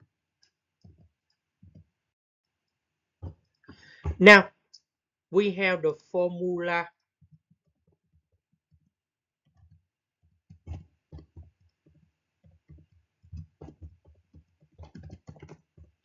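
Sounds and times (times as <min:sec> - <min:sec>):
faint keyboard typing: 0:00.4 - 0:02.0, 0:09.5 - 0:16.0.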